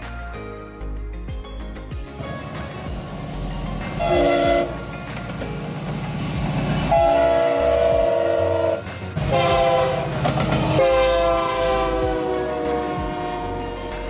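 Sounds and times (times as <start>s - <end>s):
passing train rumble: 2.0s - 14.0s
locomotive air horn blasts: 4.0s - 4.9s, 6.9s - 14.0s.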